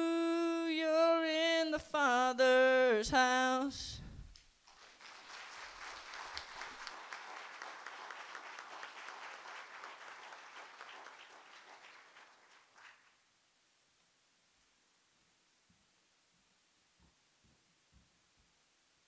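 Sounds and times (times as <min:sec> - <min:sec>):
crowd applauding: 0:04.7 - 0:13.2.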